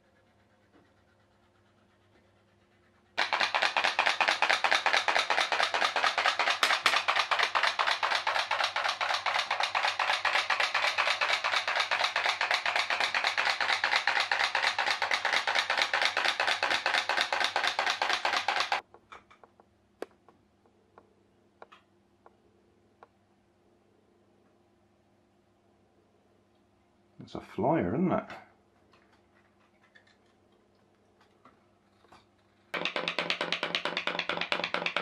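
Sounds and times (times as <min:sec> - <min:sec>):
toy steam boat popping: 0:03.2 - 0:18.9, 0:32.7 - 0:35.0.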